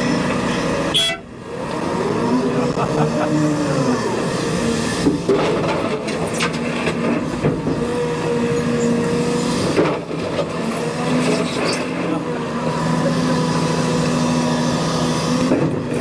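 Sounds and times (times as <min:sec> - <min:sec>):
excavator engine and hydraulic drone: 0:00.0 - 0:16.0.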